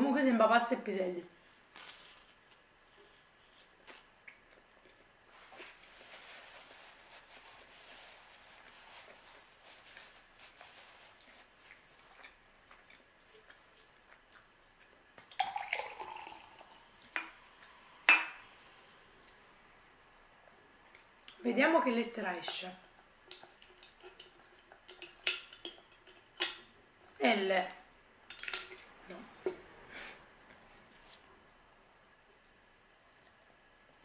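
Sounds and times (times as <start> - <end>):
paper napkin rustling: 5.3 - 11.8
soft drink pouring into glass: 15.3 - 18.4.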